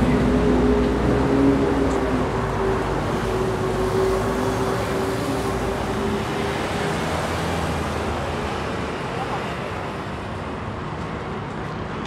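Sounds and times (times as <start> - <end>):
street traffic noise: 0.0 - 12.0.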